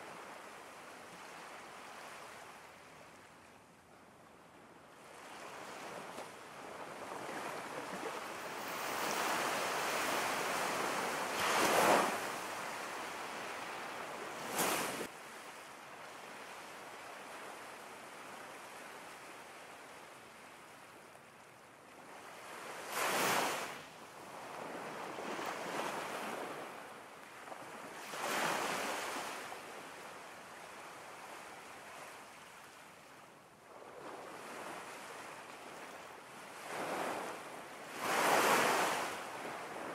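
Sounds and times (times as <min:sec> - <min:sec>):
ocean waves breaking: 0:05.3 - 0:15.1.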